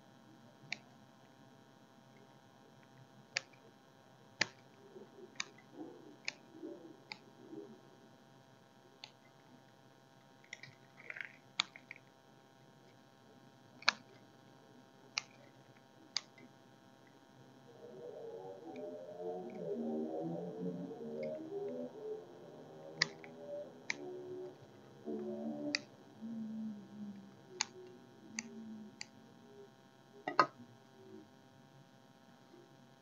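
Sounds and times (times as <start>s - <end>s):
sharp clicks: 3.3s - 3.6s, 4.4s - 7.4s, 9.0s - 9.4s, 10.4s - 12.1s, 13.8s - 14.3s, 15.1s - 17.2s, 22.9s - 24.2s, 27.1s - 29.2s.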